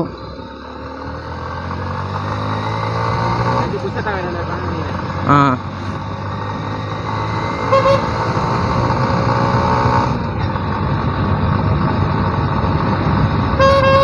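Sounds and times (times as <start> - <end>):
motorcycle riding: 0.0 - 14.0
road traffic: 0.0 - 14.0
vehicle horn toot: 7.6 - 8.3, 13.6 - 14.0.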